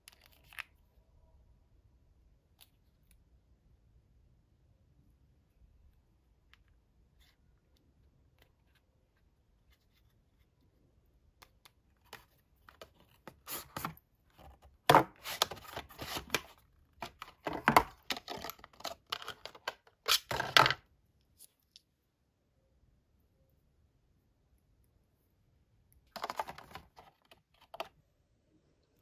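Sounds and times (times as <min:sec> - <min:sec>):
cardboard packaging rustling: 0:12.7 - 0:20.7, 0:26.1 - 0:27.9.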